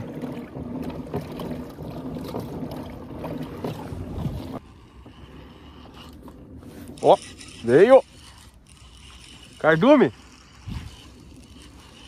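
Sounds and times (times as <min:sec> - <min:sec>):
water lapping against plastic hull: 0:00.0 - 0:12.0
wind on microphone: 0:10.5 - 0:11.7.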